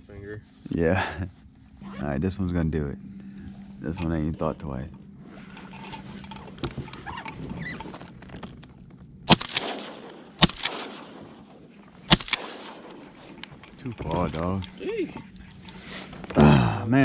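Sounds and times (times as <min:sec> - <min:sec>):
shotgun shots: 0:09.3 - 0:13.4.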